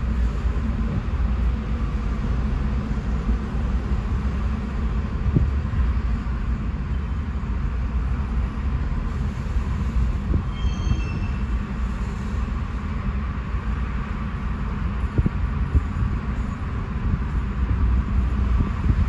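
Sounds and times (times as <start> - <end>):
train wheels rumbling on rail: 0.0 - 19.0
high wheel squeal: 10.4 - 11.6.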